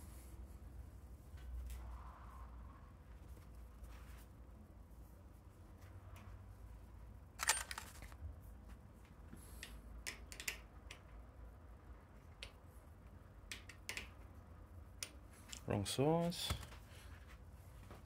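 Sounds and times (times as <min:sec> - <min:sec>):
hand tools clicking and tapping: 0:09.6 - 0:11.1, 0:13.5 - 0:14.2.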